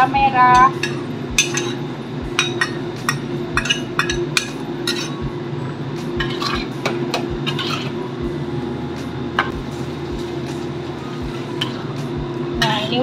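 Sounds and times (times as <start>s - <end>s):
steady low hum: 0.0s - 13.0s
spatula scraping in a wok: 3.7s - 5.2s, 6.2s - 6.8s, 7.4s - 8.0s, 9.8s - 12.0s.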